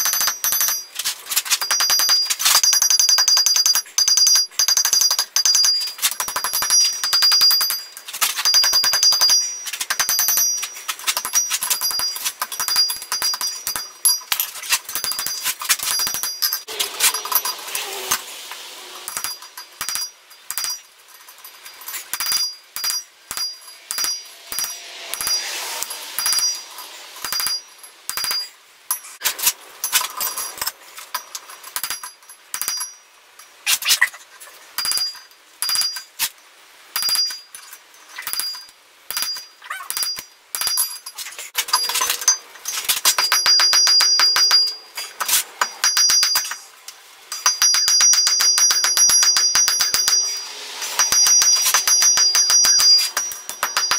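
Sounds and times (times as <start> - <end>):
hammer striking iron on anvil: 0.0 - 0.9, 1.6 - 18.2, 19.1 - 20.9, 22.1 - 28.5, 34.8 - 36.0, 37.0 - 37.4, 43.1 - 46.6, 47.3 - 53.9.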